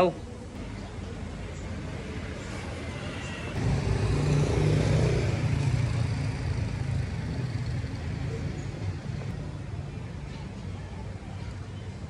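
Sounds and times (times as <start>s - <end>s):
street traffic: 0.0s - 12.0s
vehicle engine passing: 2.6s - 9.7s.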